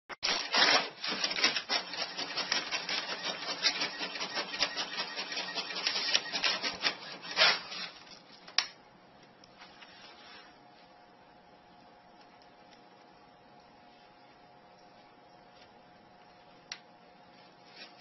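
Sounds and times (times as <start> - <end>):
paper crinkling: 0.2 - 4.6
inkjet printer running: 0.2 - 7.9.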